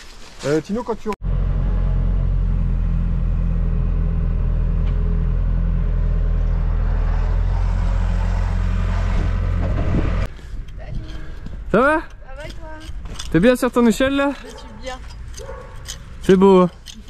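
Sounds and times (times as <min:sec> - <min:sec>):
excavator diesel engine running: 0:01.2 - 0:10.3.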